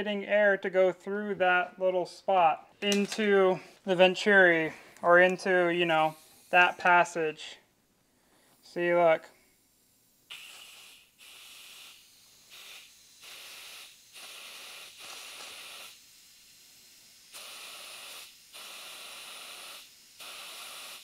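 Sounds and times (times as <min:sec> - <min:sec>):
compressed air hissing: 0:04.5 - 0:07.6, 0:08.2 - 0:21.0.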